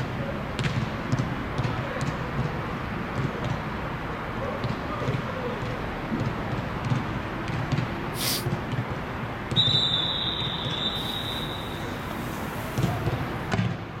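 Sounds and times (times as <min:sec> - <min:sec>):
long high whistle blast: 0:09.6 - 0:12.0.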